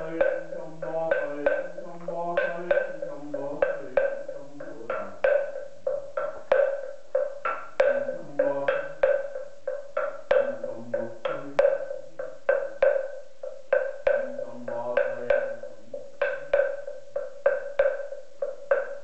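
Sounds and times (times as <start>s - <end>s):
low voice chanting: 0.0s - 5.2s, 7.8s - 9.0s, 10.3s - 12.2s, 14.1s - 16.0s
wooden temple block strikes: 0.0s - 19.0s.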